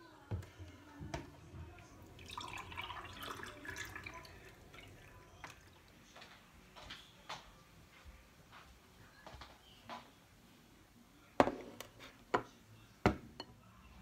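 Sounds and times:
drink pouring into a glass: 1.9 - 6.0.

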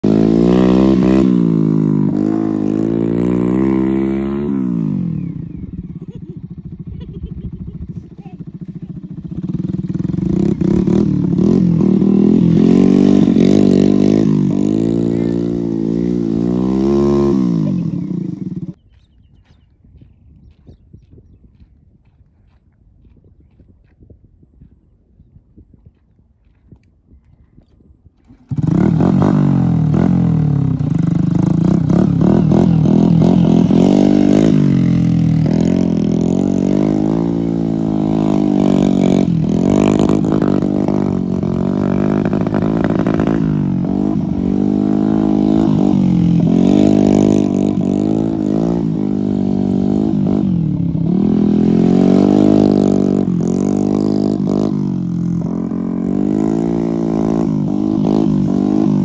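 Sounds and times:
motorcycle engine revving: 0.0 - 19.0, 28.2 - 59.0.

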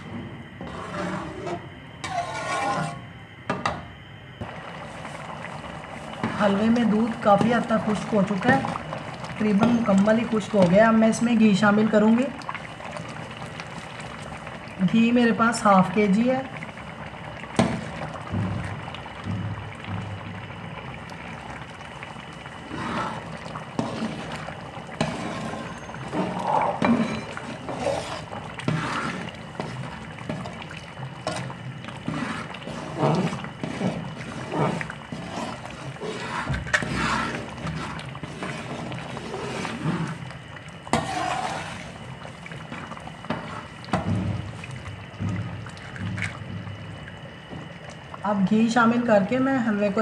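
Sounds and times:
metal ladle scraping pan: 0.6 - 3.0, 25.0 - 30.4, 32.0 - 40.2, 40.9 - 42.0
thick food bubbling and plopping: 4.4 - 49.7.

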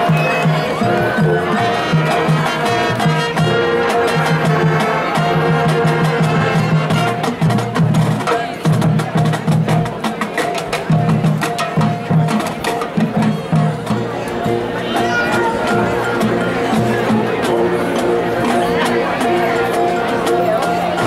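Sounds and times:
brass chords: 0.0 - 8.2
pulsing low drum line: 0.0 - 21.0.

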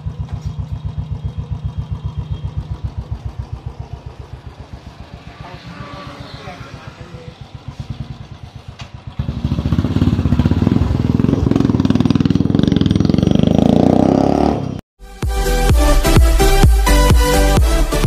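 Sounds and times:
motorcycle engine idling: 0.0 - 13.7
motorcycle pulling away: 0.0 - 14.8
electronic dance music: 15.0 - 18.0.

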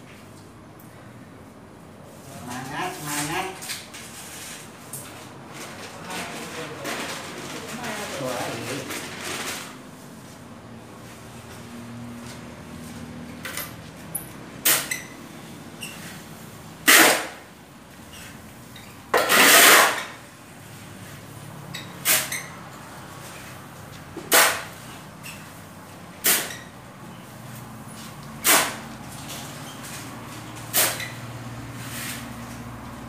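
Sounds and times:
shovel scraping sand on concrete: 16.9 - 17.4, 19.2 - 20.2, 22.0 - 22.4, 24.3 - 24.7, 26.2 - 26.6, 28.4 - 28.8, 30.7 - 31.1.

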